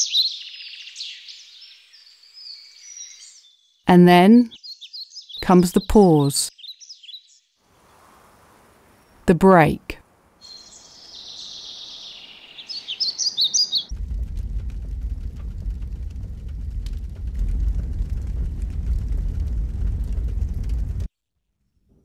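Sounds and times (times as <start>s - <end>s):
birds chirping: 0.0s - 7.5s, 8.4s - 13.9s
high steady hiss: 7.6s - 13.1s
log fire crackling: 13.9s - 21.1s
low rumble of flames: 13.9s - 21.1s.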